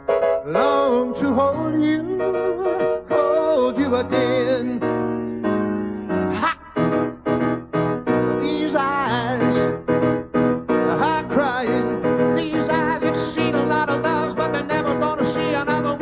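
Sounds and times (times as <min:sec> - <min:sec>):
keyboard piano chords: 0:00.0 - 0:16.0
man singing: 0:00.4 - 0:05.0, 0:06.3 - 0:06.9, 0:08.4 - 0:09.7, 0:10.9 - 0:16.0.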